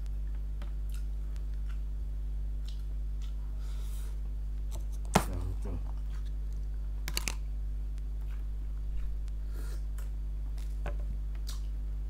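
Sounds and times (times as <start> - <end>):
steady low hum: 0.0 - 12.0
chewing and lip smacks: 0.6 - 1.9, 2.6 - 3.4, 11.4 - 11.8.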